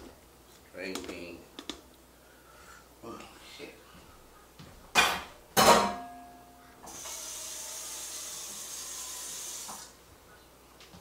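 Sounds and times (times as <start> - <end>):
steady hiss: 6.6 - 10.2.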